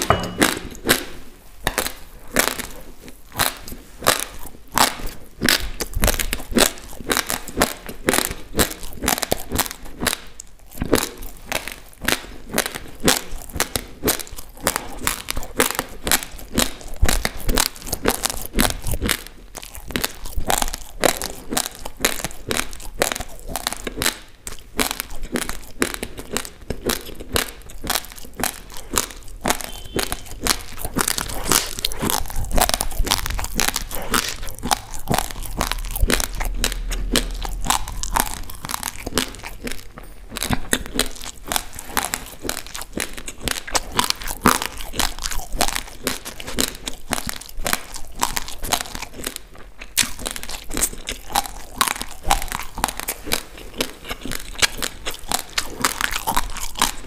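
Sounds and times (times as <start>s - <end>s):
dry rice crunching: 24.8s - 57.0s.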